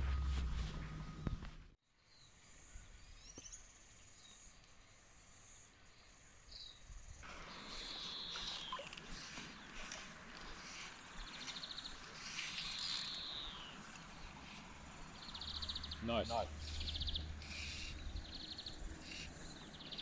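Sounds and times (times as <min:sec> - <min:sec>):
low rumble: 0:00.0 - 0:01.8
background hiss: 0:00.0 - 0:20.0
faint high insect hiss: 0:02.0 - 0:20.0
short high bird chirps: 0:07.8 - 0:09.0.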